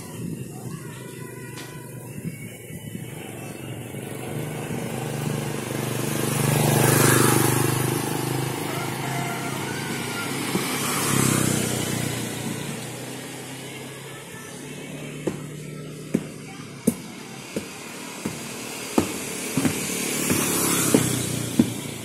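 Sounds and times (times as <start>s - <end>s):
motorcycles passing: 1.9s - 22.0s.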